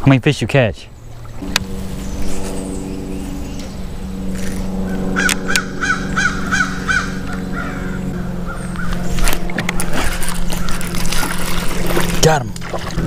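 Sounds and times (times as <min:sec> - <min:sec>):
steady low hum: 0:00.0 - 0:13.0
crow cawing: 0:04.4 - 0:09.2, 0:10.0 - 0:11.2.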